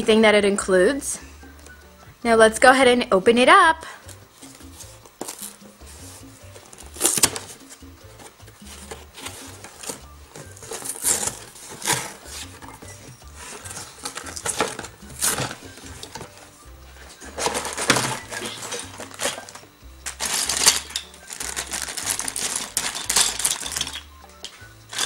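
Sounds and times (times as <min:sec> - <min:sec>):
cardboard box opened: 0:08.2 - 0:12.6
plastic bags crinkling: 0:08.7 - 0:12.7, 0:13.4 - 0:16.4, 0:17.1 - 0:24.1.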